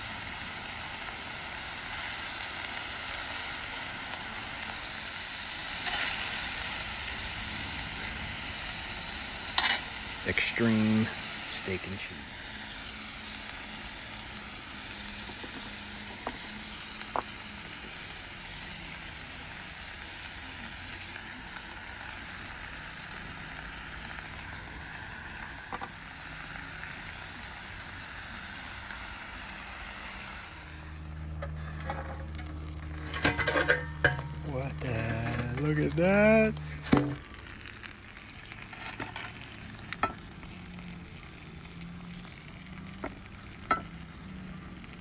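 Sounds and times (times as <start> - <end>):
meat and vegetables sizzling on griddle: 0.0 - 45.0
low steady hum: 30.4 - 45.0.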